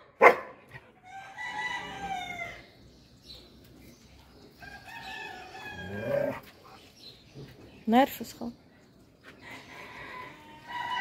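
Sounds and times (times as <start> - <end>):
rooster crowing: 1.0 - 2.6, 9.5 - 11.0.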